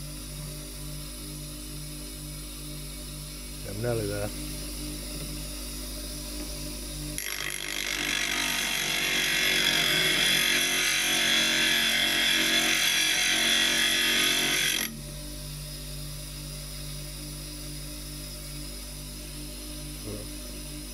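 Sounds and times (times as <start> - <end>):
bench grinder motor running: 2.7 - 18.6
chisel grinding on stone wheel: 7.2 - 14.9.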